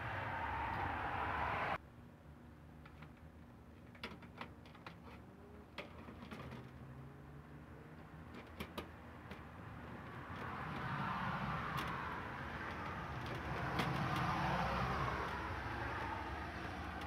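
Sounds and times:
rushing noise with low rumble: 0.0s - 1.8s.

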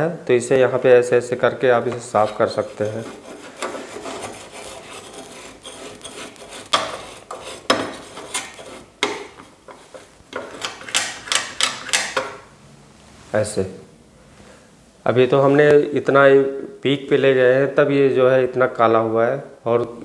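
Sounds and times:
soldering tip scrubbing in brass wool: 1.9s - 10.6s.

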